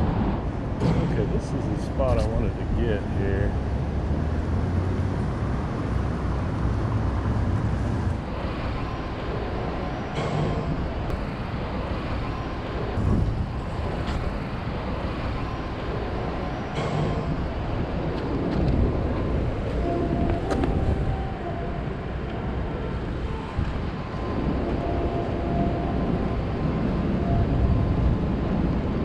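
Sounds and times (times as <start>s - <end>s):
low rumble of traffic: 0.0s - 29.0s.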